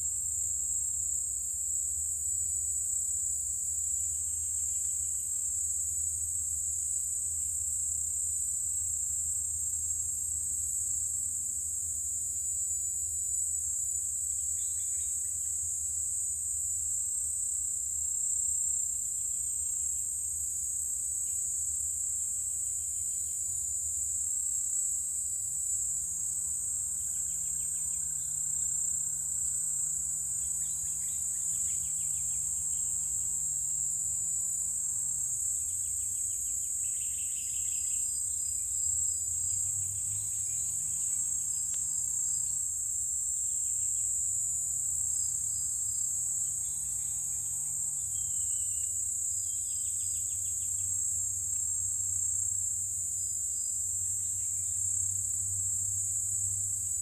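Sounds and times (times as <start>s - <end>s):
insects chorus: 0.0s - 57.0s
rasping insect trills: 18.1s - 56.8s.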